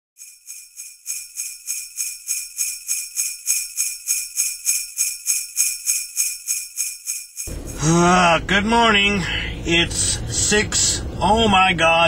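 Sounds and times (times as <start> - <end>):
sleigh bells shaken: 0.2 - 8.0.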